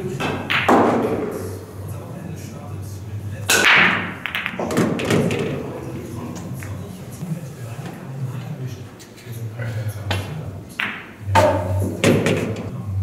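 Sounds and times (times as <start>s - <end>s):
pool balls clicking: 0.0s - 1.6s, 3.5s - 6.9s, 10.0s - 12.7s.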